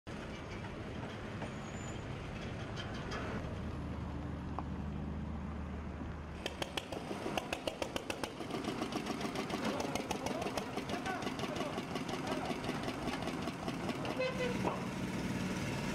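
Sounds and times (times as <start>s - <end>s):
engine running: 2.2s - 15.9s
engine knocking clatter: 6.4s - 15.2s.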